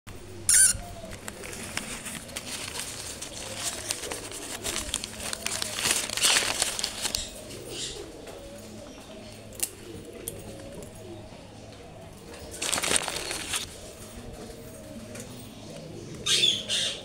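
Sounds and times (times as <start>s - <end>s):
macaw squawk: 0.5s - 1.1s
crackling and crinkling clicks: 0.5s - 8.4s, 12.2s - 13.7s.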